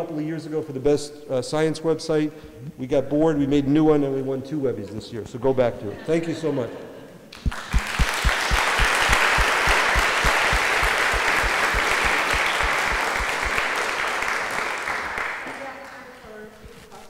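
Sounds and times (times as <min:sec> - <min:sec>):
audience applauding: 0:07.3 - 0:16.2
close steady clapping: 0:07.3 - 0:16.8.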